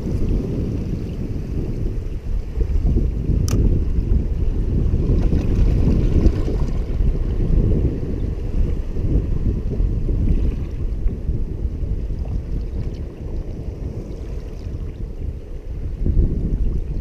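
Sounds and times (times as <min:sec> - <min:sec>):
ocean surf washing around rocks: 0:00.0 - 0:17.0
wind buffeting microphone: 0:00.0 - 0:17.0.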